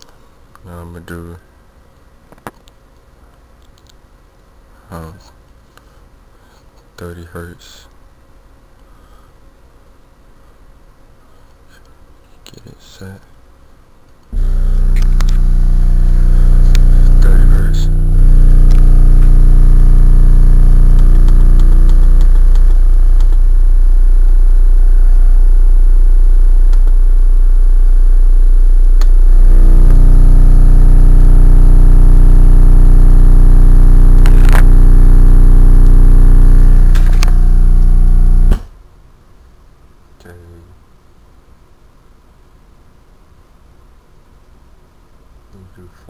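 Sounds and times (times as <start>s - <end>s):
sharp clicks: 14.1s - 15.5s, 20.9s - 23.4s, 26.7s - 27.0s
subwoofer low test tone: 14.4s - 38.6s.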